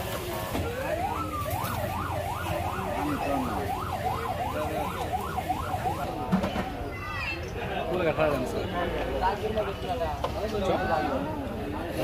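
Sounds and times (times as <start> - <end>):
siren warbling quickly: 0.7 - 6.3.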